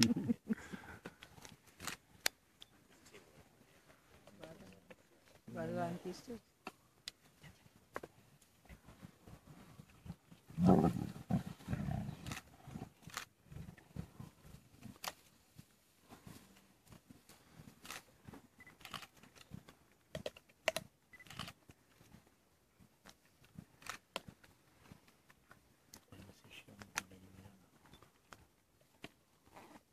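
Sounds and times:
lions growling: 10.4 - 14.4.

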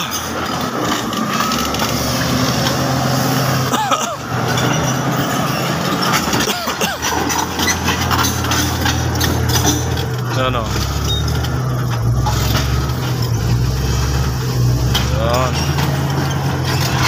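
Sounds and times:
bulldozer diesel engine: 0.0 - 17.0
tracks grinding on stones: 0.0 - 17.0
short high squeaks: 7.0 - 9.7, 10.6 - 14.0.

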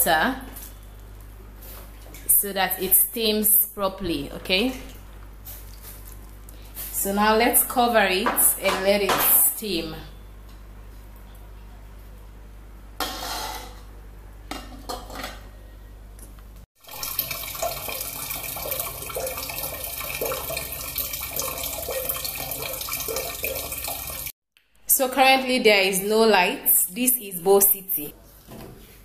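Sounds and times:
tap water running into a pot: 16.8 - 24.3.

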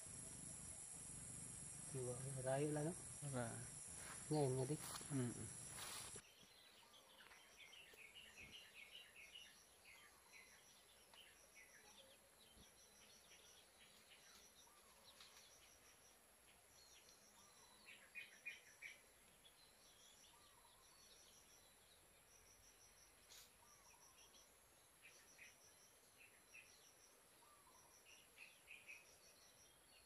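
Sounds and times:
insects ticking: 0.0 - 6.2
small birds chirping: 0.0 - 30.0.

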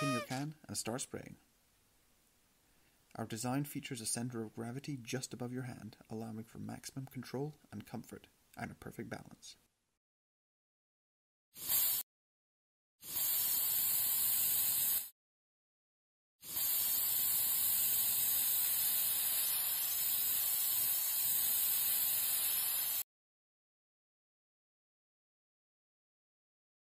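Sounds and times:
spray can hissing: 0.0 - 0.3, 11.6 - 12.0, 13.0 - 15.1, 16.4 - 23.1.

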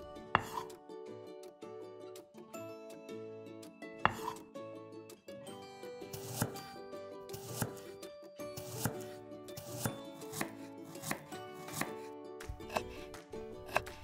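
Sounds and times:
faint background music: 0.0 - 14.0
knife tapping on wooden board: 0.4 - 0.6, 4.1 - 4.4, 12.5 - 14.0.

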